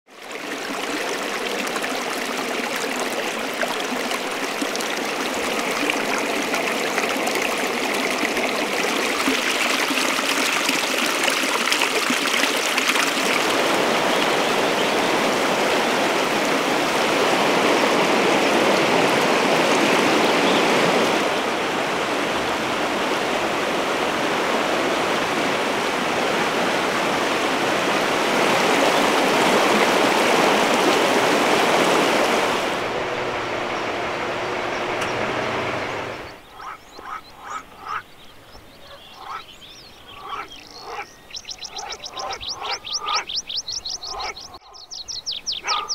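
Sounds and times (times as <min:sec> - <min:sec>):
stream rushing over rocks: 0:00.1 - 0:36.5.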